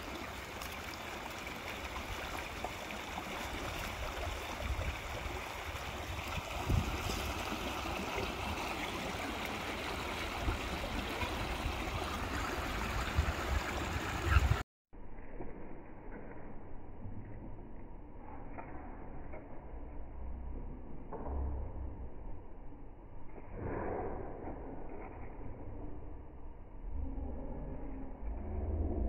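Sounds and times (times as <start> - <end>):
river rushing over stones: 0.0 - 14.6.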